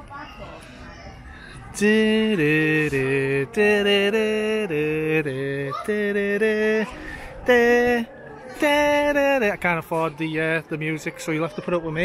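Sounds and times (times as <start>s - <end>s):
man singing wordless tune: 1.7s - 10.7s.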